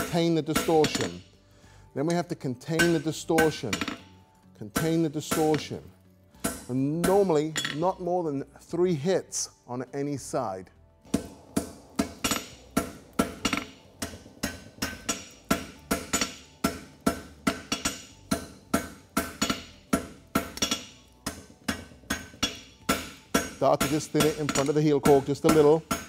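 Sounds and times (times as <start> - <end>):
hammer striking horseshoe on anvil: 0.0 - 1.2, 2.8 - 4.1, 4.8 - 8.1, 11.1 - 26.0.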